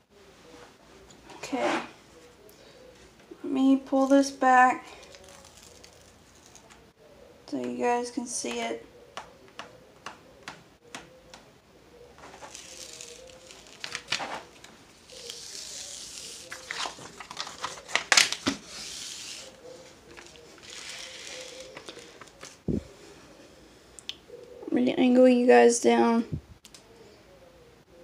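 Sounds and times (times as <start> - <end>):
plastic sheet rustling and crackling: 12.2 - 22.7.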